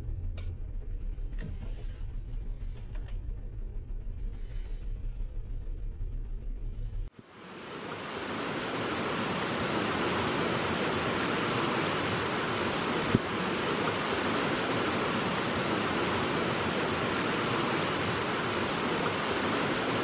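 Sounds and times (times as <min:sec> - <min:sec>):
vehicle engine rumble: 0:00.0 - 0:08.3
river flowing over rocks: 0:07.2 - 0:20.0.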